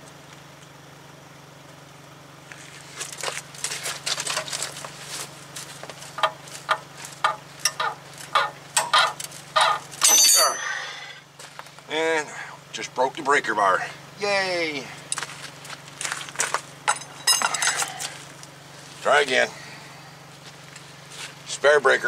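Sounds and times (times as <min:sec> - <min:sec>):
steady low hum: 0:00.0 - 0:22.0
strained breaker bar effort sounds: 0:06.1 - 0:11.0.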